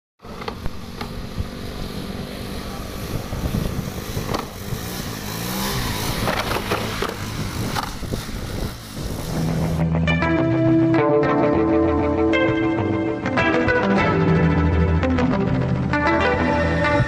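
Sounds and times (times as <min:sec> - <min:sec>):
small motorcycle engine revving: 0:00.2 - 0:09.9.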